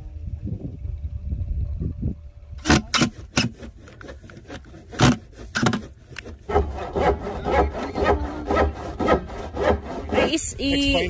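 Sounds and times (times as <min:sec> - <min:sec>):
scrapes and knocks on plastic: 0:02.6 - 0:10.4
saw cutting plastic: 0:02.6 - 0:11.0.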